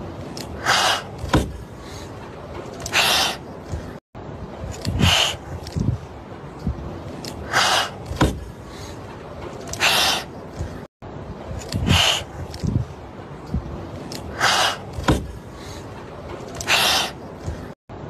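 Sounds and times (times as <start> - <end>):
kittens hissing: 0.6 - 1.2, 2.8 - 3.4, 4.9 - 5.5, 7.4 - 8.2, 9.7 - 10.3, 11.7 - 12.3, 14.3 - 15.1, 16.6 - 17.2.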